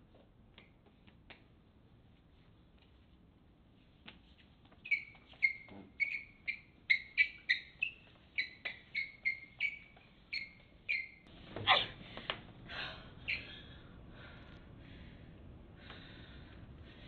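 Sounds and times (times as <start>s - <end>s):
short high-pitched squeaks: 4.8s - 11.8s.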